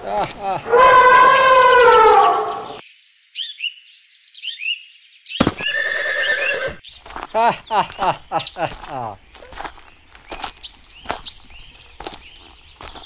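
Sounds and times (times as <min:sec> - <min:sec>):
steady animal call: 0:00.0 - 0:02.8
horse whinny: 0:00.6 - 0:02.8, 0:05.6 - 0:06.8
high bird chirps: 0:00.7 - 0:03.8, 0:04.4 - 0:13.0.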